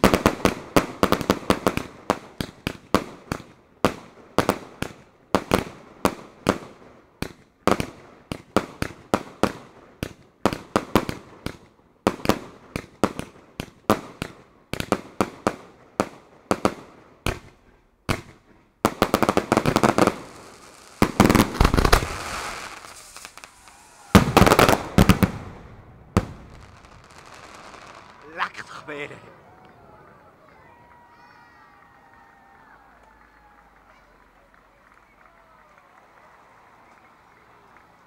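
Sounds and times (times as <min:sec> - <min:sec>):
fireworks bangs: 0:00.0 - 0:30.2.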